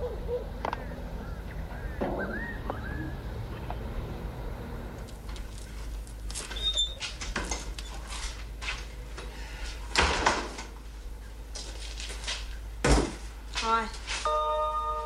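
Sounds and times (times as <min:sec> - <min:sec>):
brief squeak: 0:06.5 - 0:07.0.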